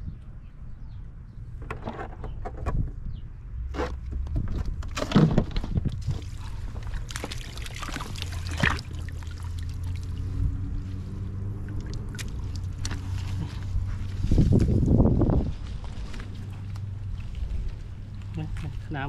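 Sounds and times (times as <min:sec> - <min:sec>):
water splashing off a net: 0:06.1 - 0:10.1.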